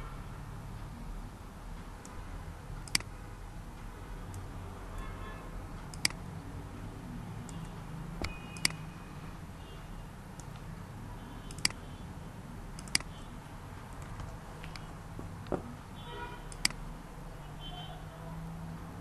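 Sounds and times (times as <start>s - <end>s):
computer mouse clicks: 2.8s - 3.1s, 5.8s - 6.3s, 7.4s - 8.8s, 10.4s - 10.7s, 11.5s - 11.8s, 12.7s - 13.2s, 16.5s - 16.8s.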